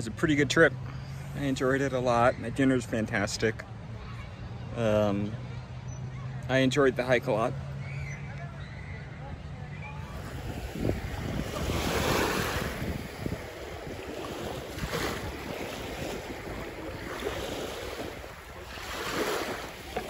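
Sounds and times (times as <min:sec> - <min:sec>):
wind rumbling on microphone: 0:09.9 - 0:20.0
waves lapping on sandy shore: 0:10.0 - 0:20.0.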